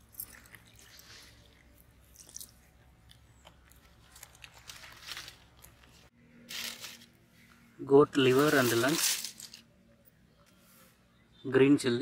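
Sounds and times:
wet squelching and splashes: 0.0s - 2.8s.

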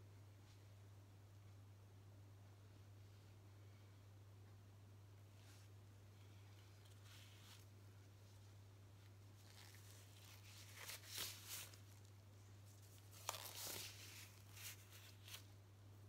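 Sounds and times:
plastic glove crinkling: 6.3s - 15.6s.

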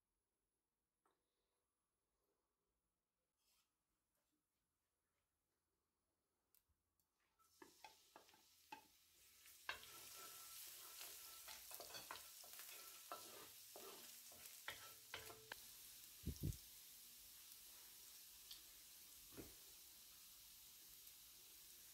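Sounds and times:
wooden spoon scraping a wok: 7.4s - 15.6s
vegetables sizzling in hot oil: 7.4s - 21.9s.

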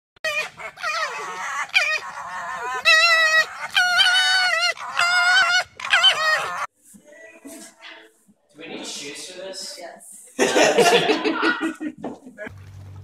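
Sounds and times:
foxes screaming: 0.2s - 6.7s.

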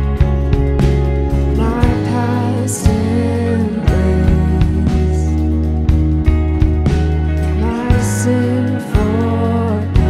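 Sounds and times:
acoustic guitar: 0.0s - 10.0s
bass guitar: 0.0s - 10.0s
drums: 0.0s - 10.0s
women singing: 1.6s - 5.4s.

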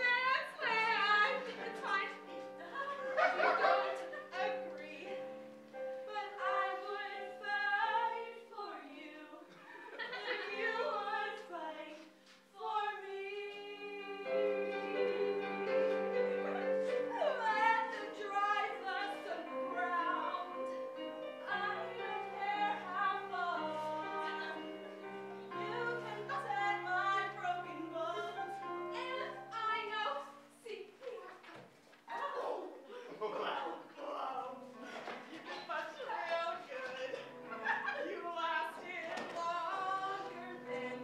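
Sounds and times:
keyboard accompaniment: 13.2s - 30.0s.

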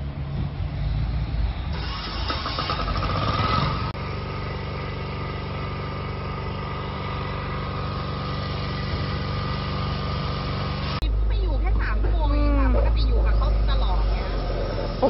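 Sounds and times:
engine idling hum: 0.0s - 15.0s
rough noisy sound: 1.6s - 11.0s.

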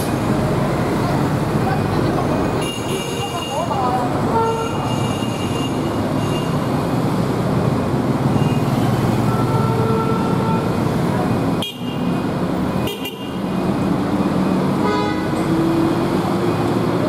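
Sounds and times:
traffic passing: 0.0s - 17.0s
vehicle horn: 9.3s - 10.7s, 14.8s - 15.4s.

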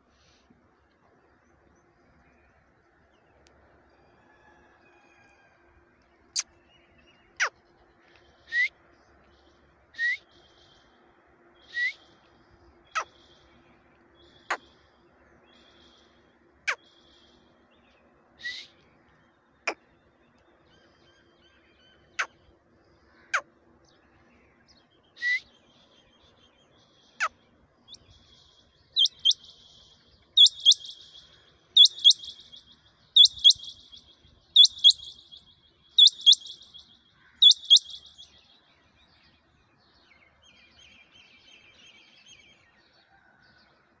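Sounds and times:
faint chirping: 26.7s - 38.6s
quail calling sharp double notes: 29.0s - 29.5s, 30.4s - 31.2s, 31.8s - 35.4s, 36.0s - 36.8s, 37.4s - 38.1s.

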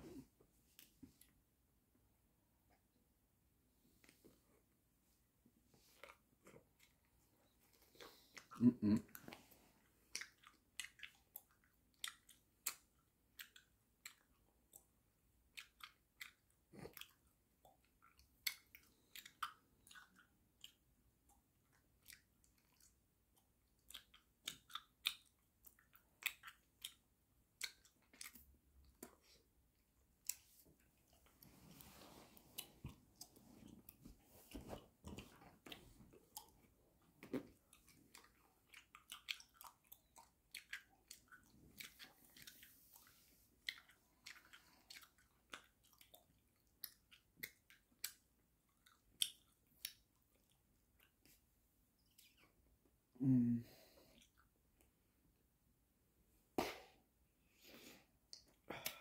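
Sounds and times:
gum chewing wet smacks: 5.9s - 9.4s, 10.1s - 31.5s, 32.5s - 51.4s, 52.0s - 52.6s.

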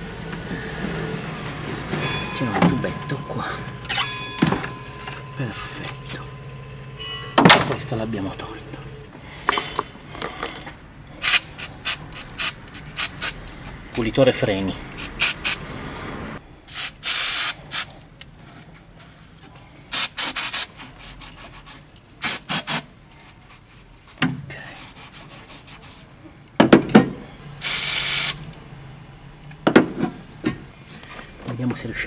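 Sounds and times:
aerosol can spraying: 11.2s - 13.4s, 15.0s - 15.6s, 16.7s - 17.9s, 19.9s - 20.7s, 22.2s - 22.8s, 27.6s - 28.4s.

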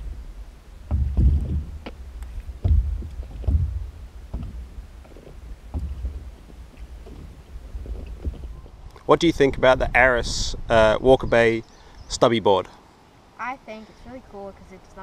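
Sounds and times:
steady low rumble: 0.0s - 11.6s
paddle splashes: 0.8s - 8.8s
water slapping and gurgling: 0.8s - 8.8s.

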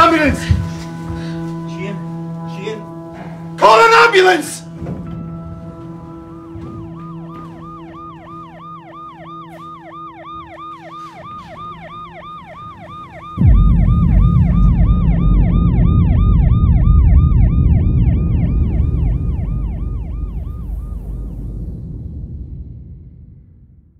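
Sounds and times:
ambulance siren yelping: 0.0s - 21.5s
loud low rumble: 13.4s - 23.9s.

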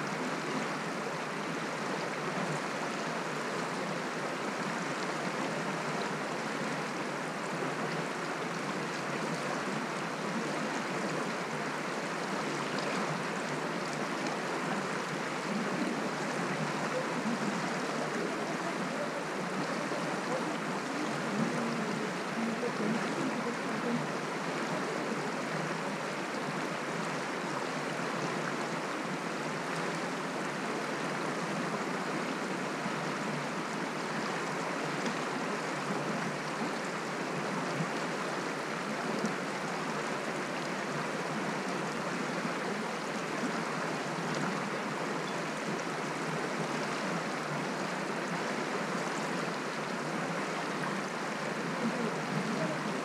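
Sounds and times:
mountain stream flowing over stones: 0.0s - 53.0s.

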